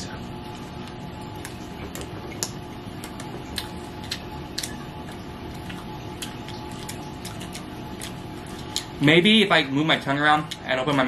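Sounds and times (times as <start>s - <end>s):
low room hum: 0.0s - 11.0s
people chewing: 0.9s - 9.0s
wet mouth clicks and smacks: 1.4s - 9.0s.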